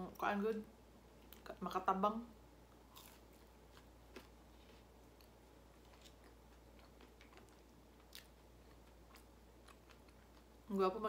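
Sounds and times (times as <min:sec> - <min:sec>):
chewing crispy fried potatoes: 0:02.7 - 0:10.9.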